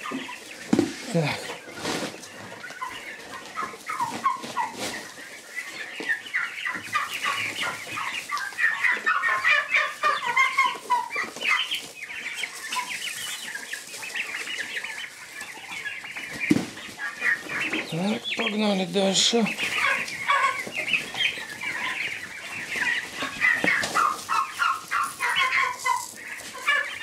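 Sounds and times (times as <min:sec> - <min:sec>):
turkey poults peeping: 0:00.0 - 0:27.0.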